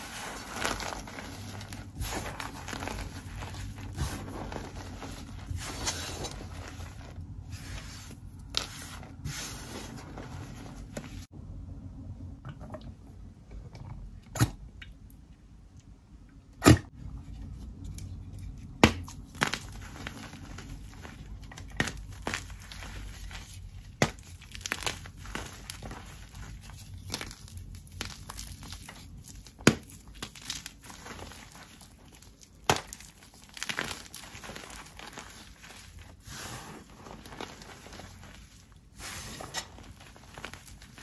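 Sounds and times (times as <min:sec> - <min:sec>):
powdery block crumbling: 0:00.0 - 0:07.9, 0:19.2 - 0:41.0.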